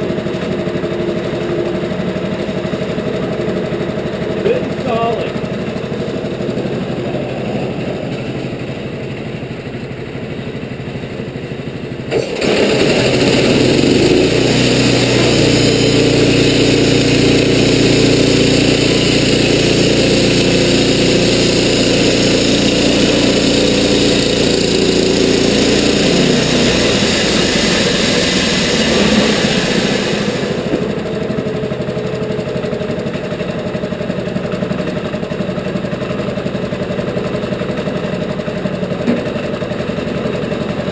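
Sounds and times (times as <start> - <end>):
sawmill engine revving: 0.0 - 40.9
bandsaw blade cutting log: 12.1 - 30.9.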